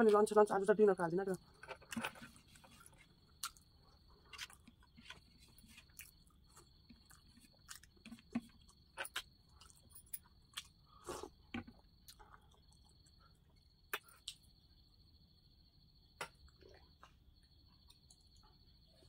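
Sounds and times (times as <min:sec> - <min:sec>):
chewing and mouth noises: 0:02.4 - 0:14.4.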